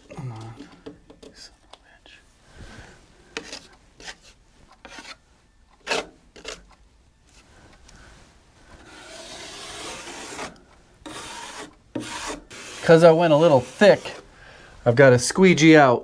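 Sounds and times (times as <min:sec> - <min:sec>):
drywall knife scraping: 0:03.4 - 0:05.2, 0:05.8 - 0:06.6, 0:08.8 - 0:14.3.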